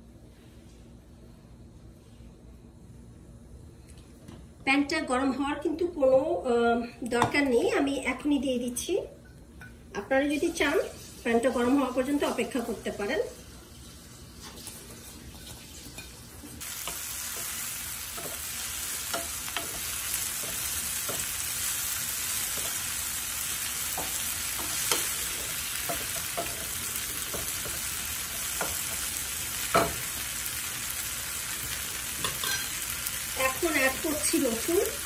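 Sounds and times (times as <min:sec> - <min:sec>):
leaves sizzling in oil: 0:10.0 - 0:35.0.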